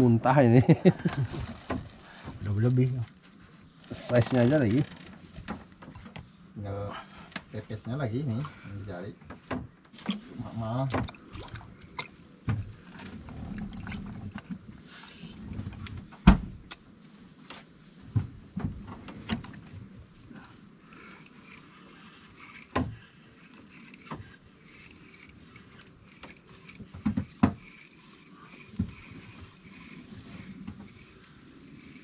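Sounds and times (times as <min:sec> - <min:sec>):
knocks and clicks in a boat: 0:07.3 - 0:16.9, 0:17.5 - 0:20.0, 0:26.1 - 0:27.7, 0:30.5 - 0:31.0.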